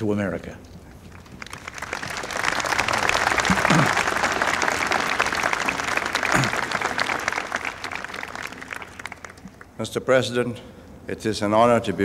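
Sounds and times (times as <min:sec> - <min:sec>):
crowd applauding: 0:01.1 - 0:09.8.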